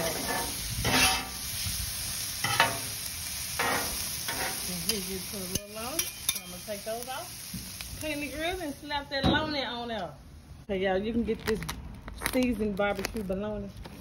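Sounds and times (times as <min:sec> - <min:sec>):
metal spatula scraping: 0:00.0 - 0:01.5, 0:03.6 - 0:06.8
vegetables sizzling on griddle: 0:00.0 - 0:10.2.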